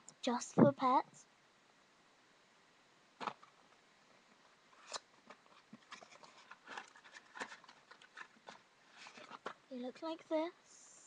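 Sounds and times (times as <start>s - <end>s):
small clicks and rustles: 3.2s - 9.7s
cardboard box handling: 4.9s - 9.6s.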